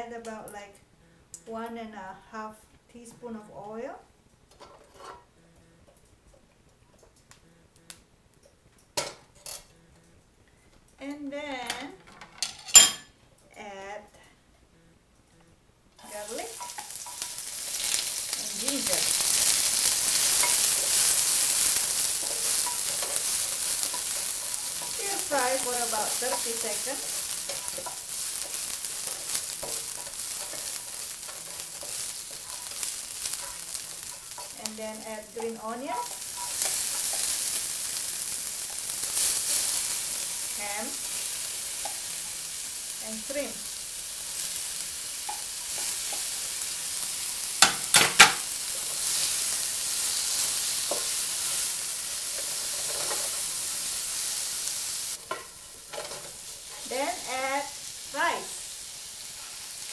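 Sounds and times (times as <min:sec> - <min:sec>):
spatula scraping and tapping wok: 0:04.5 - 0:05.3, 0:16.0 - 0:57.7
garlic sizzling in hot oil: 0:16.0 - 0:59.9.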